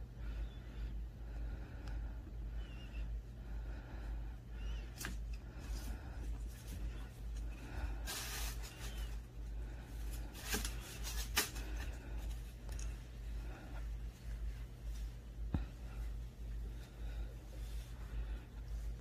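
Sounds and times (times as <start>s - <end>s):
steady low hum: 0.0s - 19.0s
fabric toys rustling on floor: 6.5s - 9.3s, 9.9s - 12.6s.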